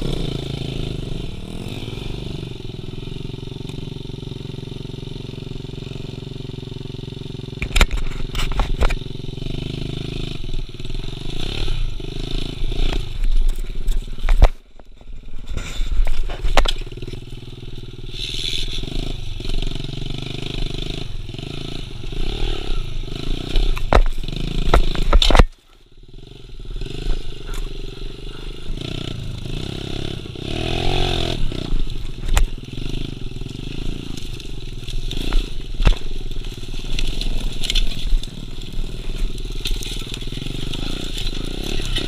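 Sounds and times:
pit bike engine revving: 0.0 - 14.5, 15.1 - 42.0
bike knocking and clattering: 23.6 - 25.6.

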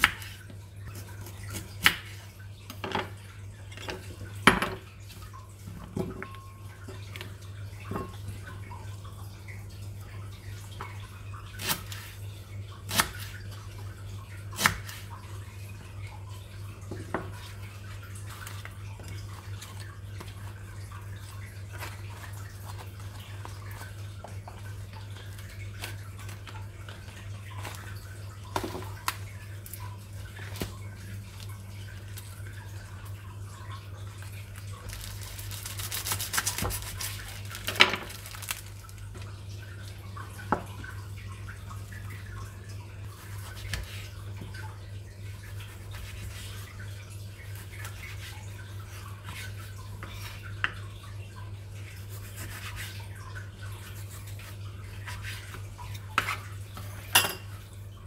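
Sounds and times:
utensils and dishes clinking: 56.8 - 57.6.

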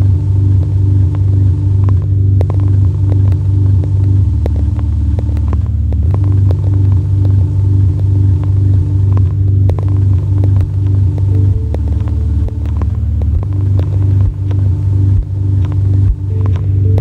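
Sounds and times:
car interior rumble: 0.0 - 17.0.

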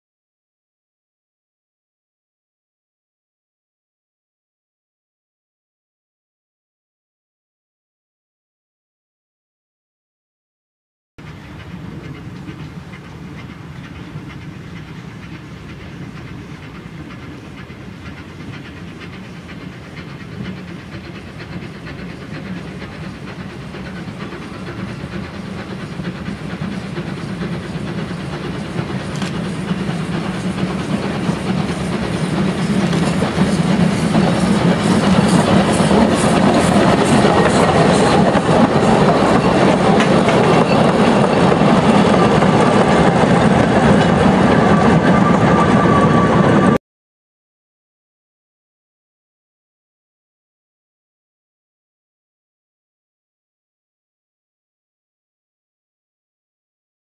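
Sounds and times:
rhythmic locomotive beats: 11.2 - 46.8
steam locomotive passing: 11.2 - 46.8.

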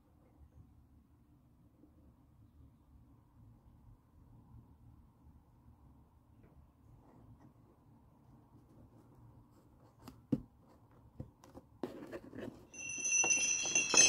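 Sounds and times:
music with chiming tones: 12.8 - 14.0.

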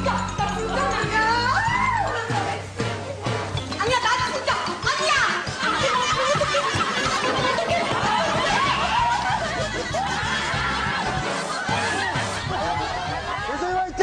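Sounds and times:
low background music: 0.0 - 14.0
people laughing: 5.5 - 14.0.

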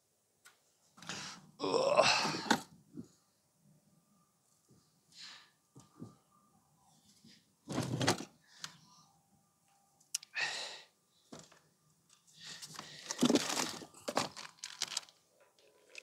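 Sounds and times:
crinkling and rustling of bag: 12.5 - 16.0.

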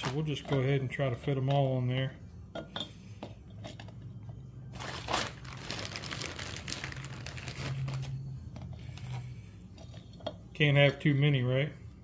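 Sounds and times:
plastic bag crinkling: 4.7 - 8.2.

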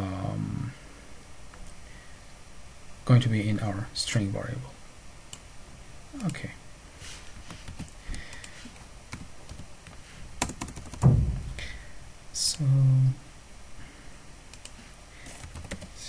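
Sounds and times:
heavy thump: 11.0 - 11.8
keyboard keystrokes and clicks: 14.5 - 15.9.

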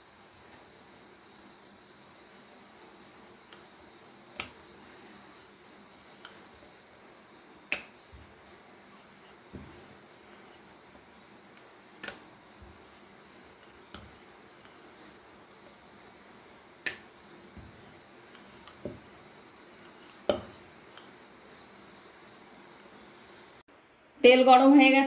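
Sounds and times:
rolling pin knocking on wooden board: 18.7 - 19.1, 20.3 - 20.6.

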